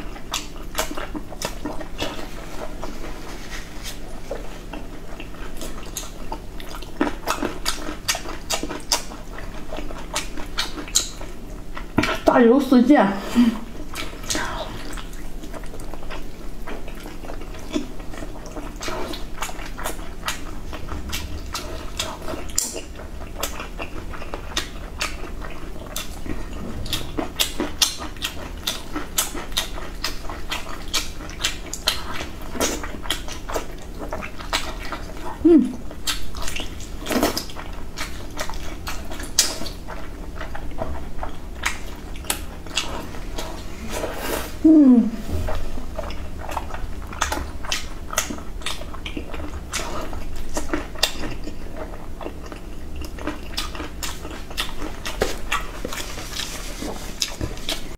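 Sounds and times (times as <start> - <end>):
wet chewing and lip smacks: 0.0 - 2.9, 3.9 - 12.3, 13.8 - 43.7, 45.8 - 57.9
person humming: 35.4 - 35.8, 44.6 - 45.2.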